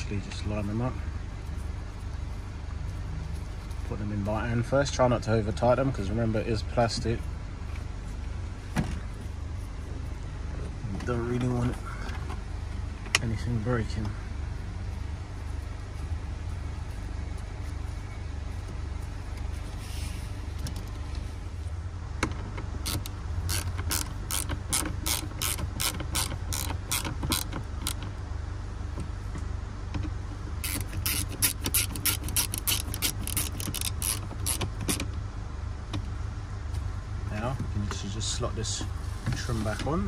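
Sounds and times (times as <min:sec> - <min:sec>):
steady low hum: 0:00.0 - 0:40.0
ratchet driver clicking: 0:22.8 - 0:28.1, 0:30.6 - 0:35.1.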